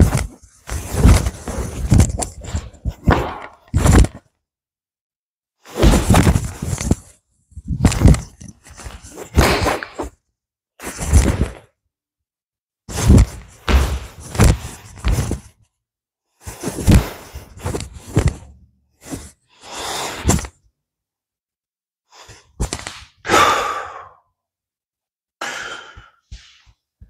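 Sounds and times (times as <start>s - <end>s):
cloth snapping and swishing: 0.0s - 4.2s, 5.7s - 7.1s, 16.4s - 18.4s
feet stomping on wooden floor: 13.1s - 14.7s.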